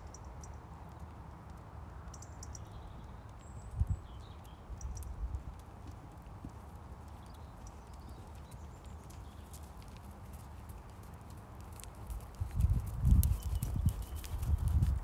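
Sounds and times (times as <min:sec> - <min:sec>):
horse hoofbeats on arena surface: 0:04.8 - 0:15.0.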